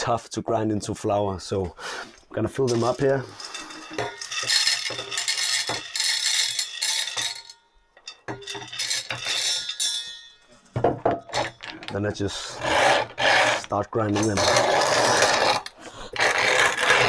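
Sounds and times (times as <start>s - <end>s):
acorn pieces clattering into metal hopper: 2.4s - 10.1s.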